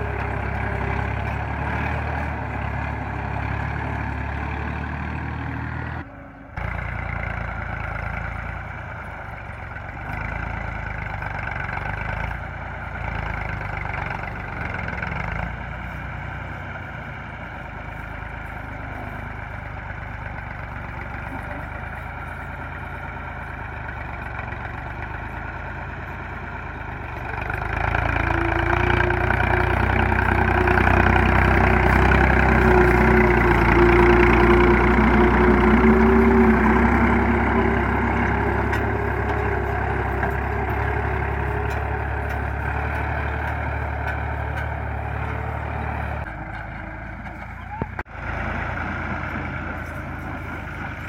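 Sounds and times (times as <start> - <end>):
tractor diesel engine running: 0.0 - 51.0.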